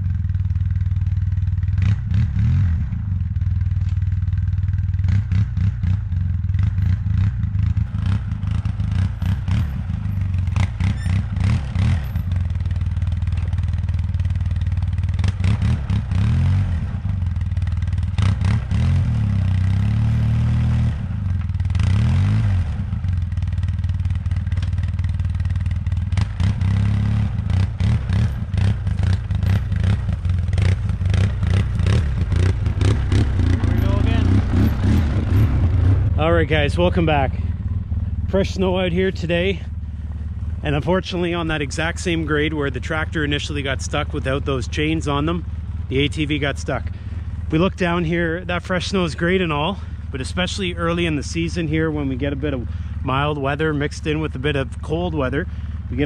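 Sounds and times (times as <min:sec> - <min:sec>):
atv engine revving: 0:00.0 - 0:56.0.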